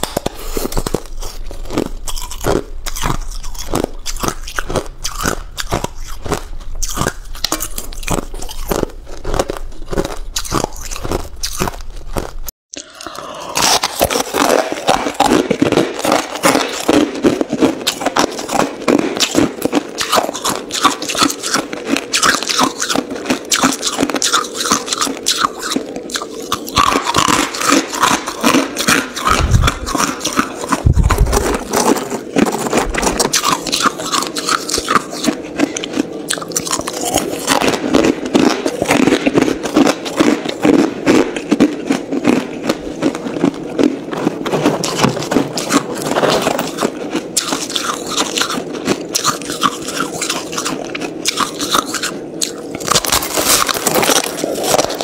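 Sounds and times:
ice crunched between teeth: 0.0s - 55.0s
dull low thumps: 29.3s - 30.0s, 30.8s - 31.6s.

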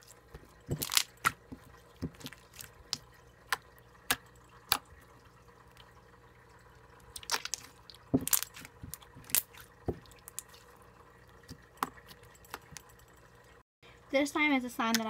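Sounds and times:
slime squishing with wet pops: 0.3s - 4.9s, 7.1s - 10.6s.

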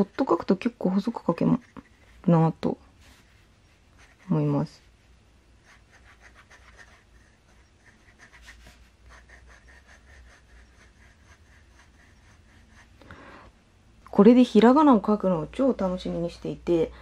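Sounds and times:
fountain pen scratching on paper: 0.0s - 2.4s, 3.9s - 4.7s, 5.6s - 12.9s.

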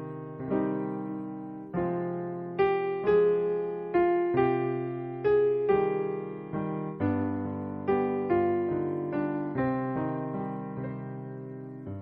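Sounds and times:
electric piano ballad melody: 0.0s - 12.0s.

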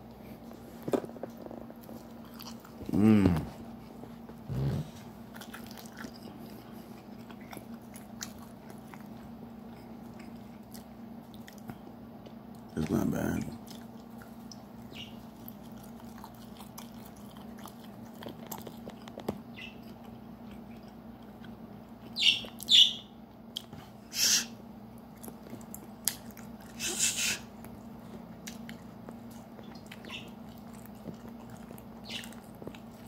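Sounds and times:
soft chewing: 0.0s - 24.0s, 24.8s - 33.0s
low steady hum: 0.0s - 33.0s
parrot squawking: 22.2s - 23.1s.

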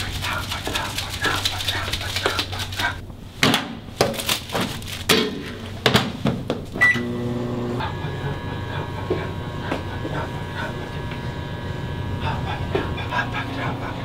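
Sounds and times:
microwave running hum: 6.6s - 14.0s
microwave beep: 6.8s - 10.0s.

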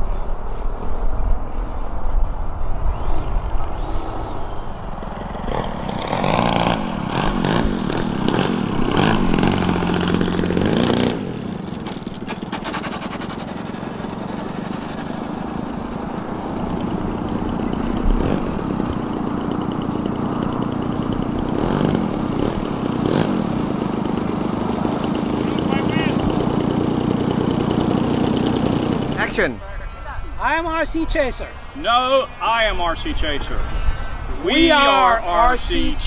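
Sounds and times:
model plane engine and propeller: 1.4s - 30.0s.

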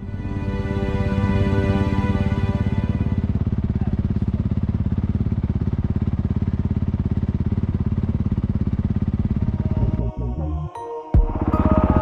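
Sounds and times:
motorcycle engine idling: 1.8s - 10.6s, 11.2s - 12.0s.

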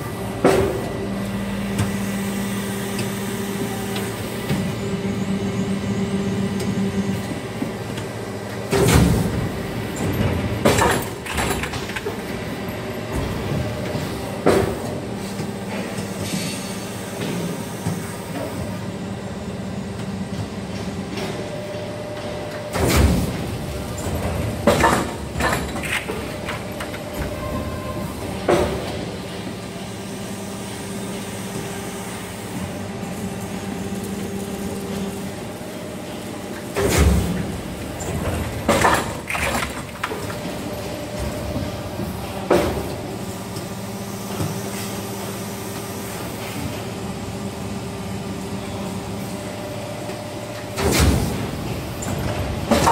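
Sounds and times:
machine clunking and clatter: 6.6s - 18.8s, 20.0s - 29.4s, 34.0s - 43.7s, 50.1s - 52.9s.

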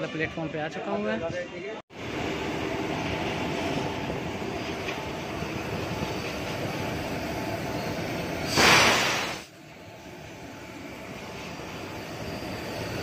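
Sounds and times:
electric locomotive running noise: 1.9s - 13.0s
short loud hiss: 8.4s - 9.5s.

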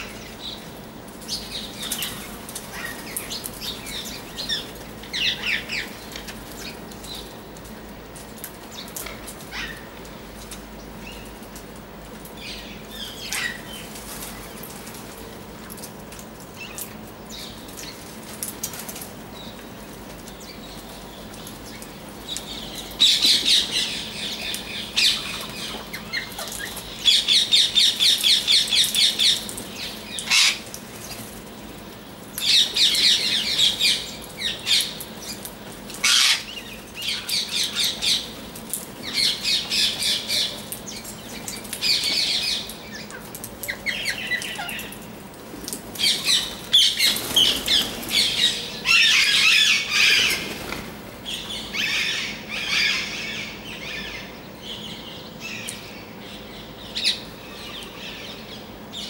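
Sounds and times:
parakeets screeching: 36.0s - 36.6s.

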